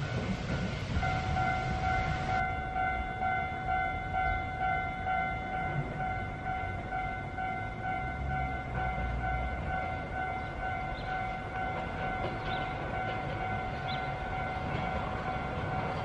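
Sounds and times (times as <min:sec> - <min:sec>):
low rumble of tram: 0:00.0 - 0:16.0
level crossing alarm pulsing tone: 0:01.0 - 0:06.7.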